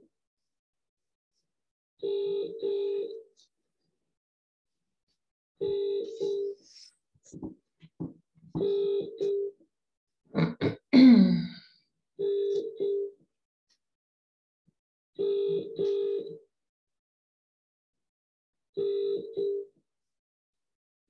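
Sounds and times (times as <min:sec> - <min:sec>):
telephone ringing tone: 0:02.0 - 0:03.4, 0:05.6 - 0:06.6, 0:08.6 - 0:09.6, 0:12.2 - 0:13.2, 0:15.2 - 0:16.4, 0:18.8 - 0:19.7.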